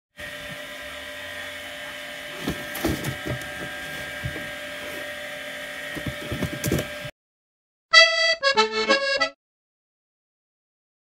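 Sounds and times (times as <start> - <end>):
steady background hum: 0.2 - 7.1
cardboard box knocks and scrapes: 2.4 - 4.6, 6.0 - 7.1.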